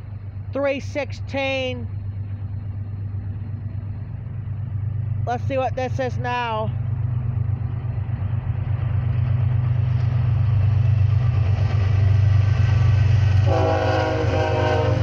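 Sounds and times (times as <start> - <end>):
diesel locomotive engine rumble: 0.0 - 15.0
train air horn blast: 13.4 - 15.0.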